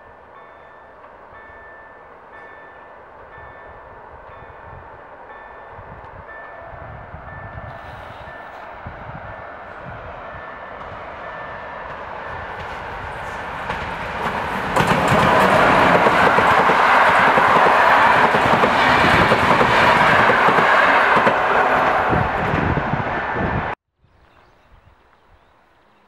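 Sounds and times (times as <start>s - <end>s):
train passing at speed: 0.0s - 23.8s
train wheels clickety-clack: 10.7s - 22.7s.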